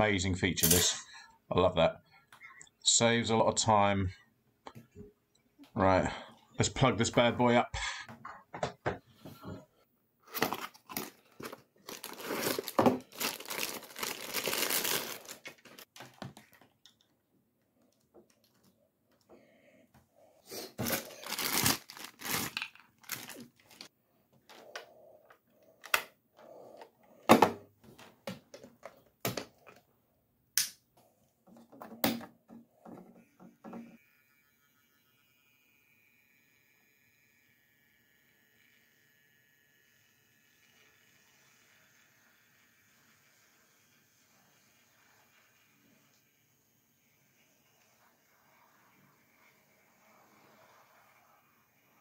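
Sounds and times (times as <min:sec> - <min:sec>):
plastic packaging crinkling and tearing: 0:10.3 - 0:16.6, 0:20.8 - 0:23.9.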